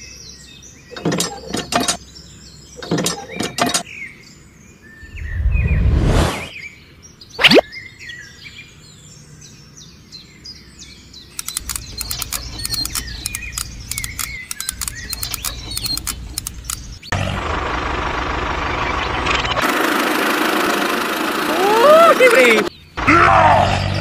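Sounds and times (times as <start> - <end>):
small birds chirping: 0.0 - 5.9, 6.5 - 17.2, 21.5 - 24.0
falling whoosh: 5.0 - 6.5.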